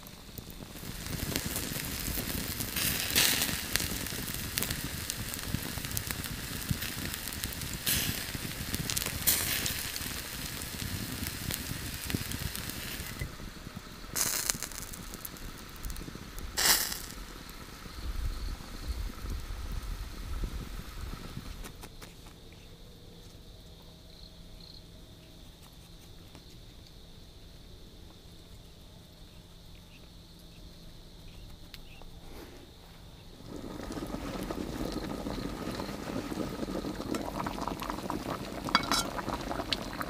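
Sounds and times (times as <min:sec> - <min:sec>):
hissing pops: 0:00.0 - 0:18.0, 0:20.7 - 0:22.4
fat sizzling: 0:00.0 - 0:21.8, 0:33.3 - 0:40.0
campfire crackling: 0:00.0 - 0:22.6, 0:33.0 - 0:40.0.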